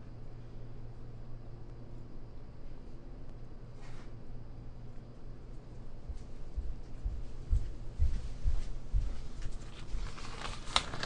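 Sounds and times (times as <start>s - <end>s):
footsteps soft thuds: 6.1s - 10.0s.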